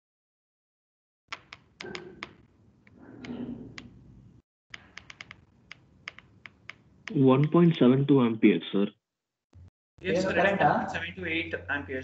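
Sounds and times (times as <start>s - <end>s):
sharp clicks and taps: 4.7s - 7.6s.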